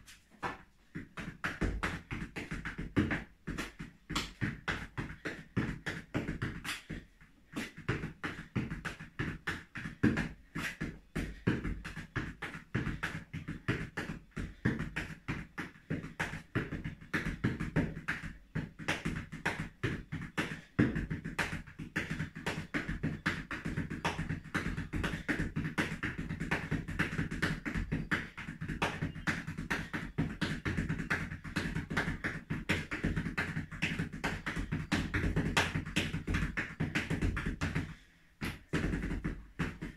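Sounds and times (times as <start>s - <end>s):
flamenco heel and toe strikes: 0.4s - 6.7s, 11.2s - 39.9s.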